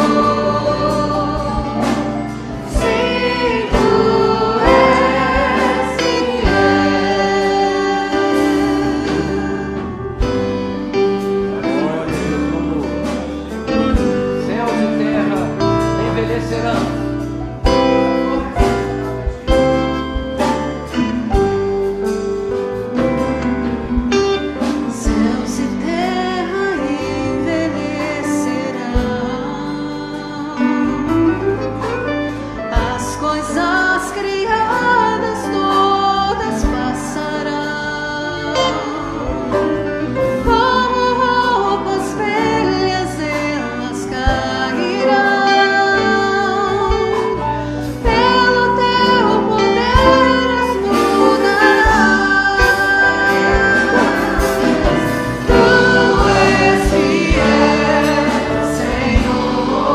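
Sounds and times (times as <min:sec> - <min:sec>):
hymn singing: 0:00.0 - 0:31.7, 0:32.4 - 0:59.9
steady bass: 0:00.0 - 0:59.9
percussion hits: 0:50.0 - 0:59.9.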